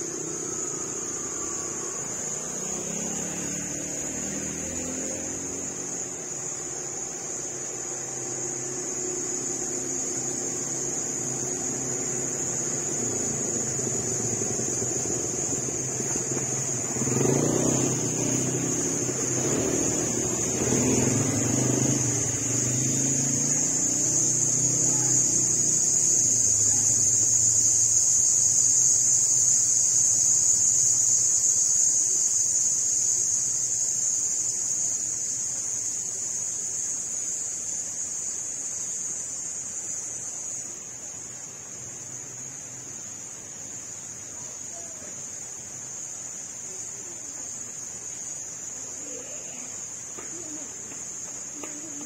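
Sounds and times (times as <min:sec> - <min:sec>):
motorbike engines passing: 0:00.0 - 0:27.7
high-pitched whine: 0:00.0 - 0:35.4.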